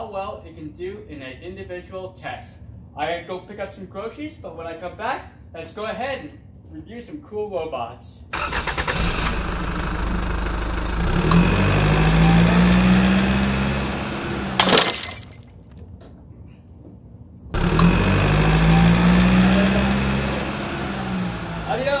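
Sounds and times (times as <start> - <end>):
simulated car engine revving: 9.1 - 14.6, 17.6 - 22.0.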